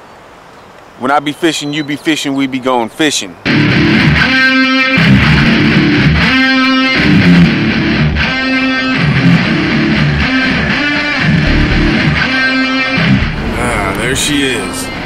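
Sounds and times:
rock music with electric guitar: 3.5s - 13.6s.

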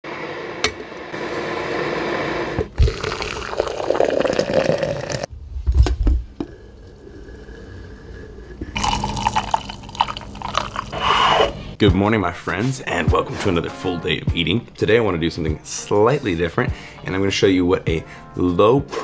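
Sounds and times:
hot water pouring from kettle: 1.2s - 5.3s, 8.8s - 11.0s
coffee pouring into mug: 2.6s - 5.3s, 8.8s - 11.0s.

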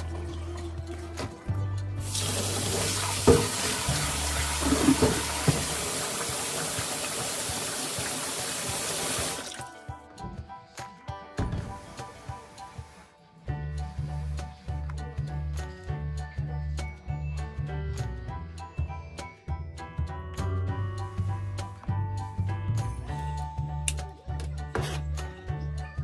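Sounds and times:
faint background music: 0.0s - 26.0s
tap water running into bowl: 2.0s - 9.7s
bowl knocking in sink: 3.2s - 6.0s.

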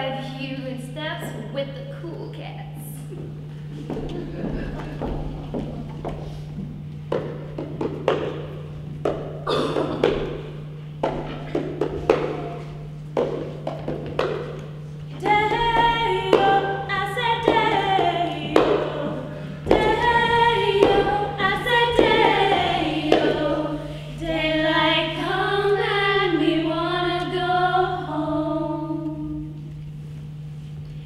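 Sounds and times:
low electrical hum: 0.0s - 31.0s
women singing together: 15.2s - 29.7s.

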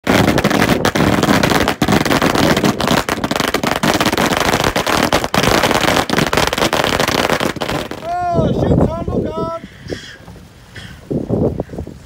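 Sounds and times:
firecrackers popping: 0.0s - 8.4s.

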